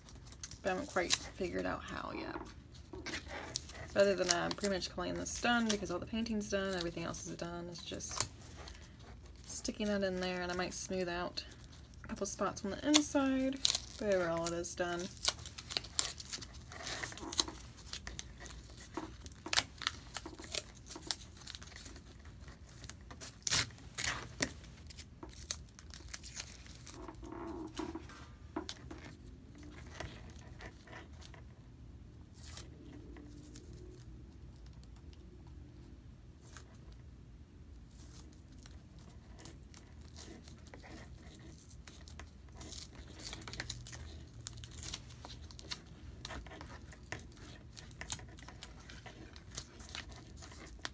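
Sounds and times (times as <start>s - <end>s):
adhesive tape tearing and crumpling: 0.0s - 31.4s, 37.9s - 50.9s.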